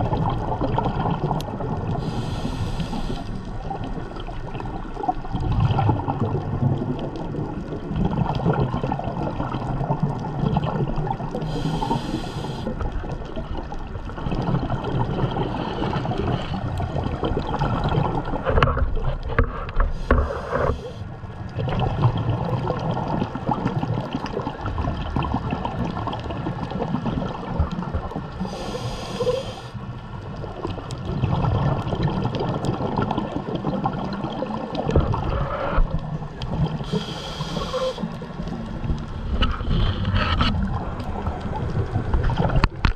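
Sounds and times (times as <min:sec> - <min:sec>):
exhaled bubbles gurgling: 0:00.0 - 0:42.9
regulator inhalation hiss: 0:02.0 - 0:03.4, 0:11.4 - 0:12.7, 0:28.4 - 0:29.8, 0:36.8 - 0:38.1.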